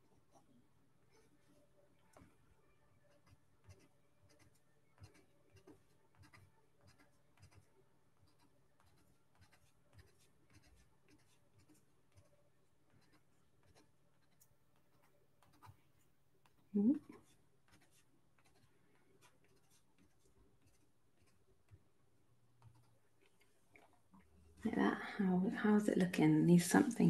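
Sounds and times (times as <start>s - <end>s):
pen scratching and tapping on paper: 3.1s - 21.9s, 22.6s - 24.0s.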